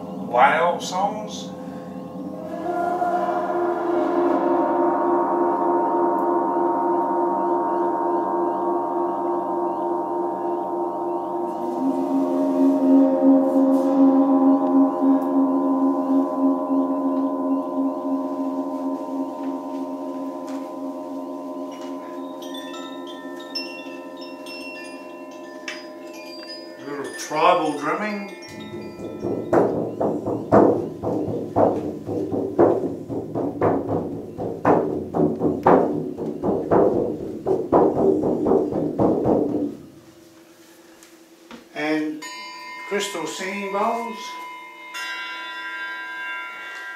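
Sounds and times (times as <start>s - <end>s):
gong rubbed with friction mallet: 0.0s - 40.8s
frame drum beat: 28.5s - 39.9s.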